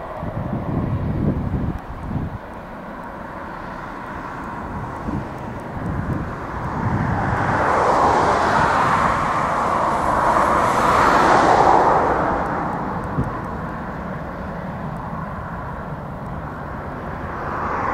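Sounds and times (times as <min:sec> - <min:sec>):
jet engines at take-off: 0:00.0 - 0:17.9.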